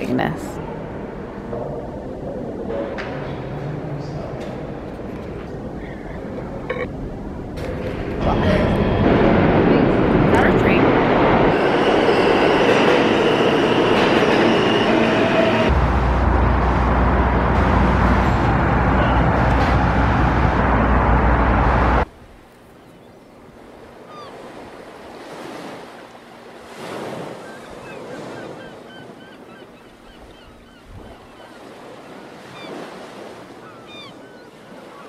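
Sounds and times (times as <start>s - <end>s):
loud rushing rumble: 7.2s - 22.1s.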